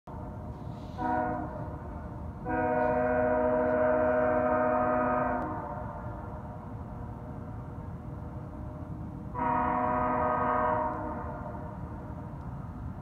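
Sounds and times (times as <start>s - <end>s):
locomotive air horn chord: 0.7s - 1.7s, 2.4s - 6.1s, 9.4s - 11.6s.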